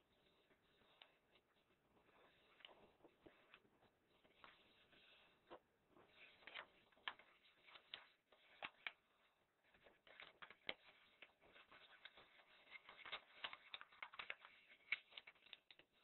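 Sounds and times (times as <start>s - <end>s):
paper rustling and crinkling: 0.3s - 16.0s
sharp paper ticks: 9.8s - 16.0s.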